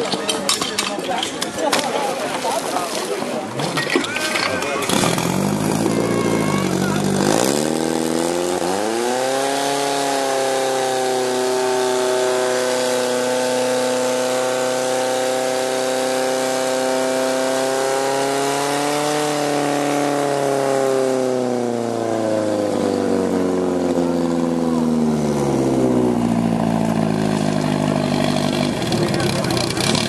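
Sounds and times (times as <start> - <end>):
pump engine running hard: 4.2 - 30.0.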